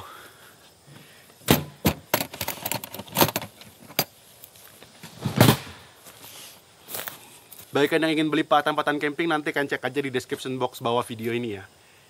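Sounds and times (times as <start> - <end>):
metal box clicks and clanks: 1.5 - 4.1.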